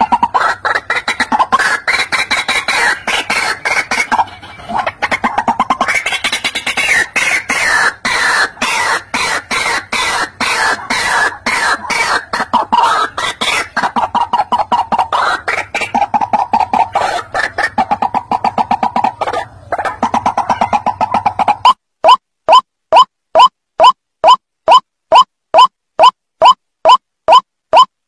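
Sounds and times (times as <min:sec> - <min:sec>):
bird harsh croaking calls: 0:00.0 - 0:21.8.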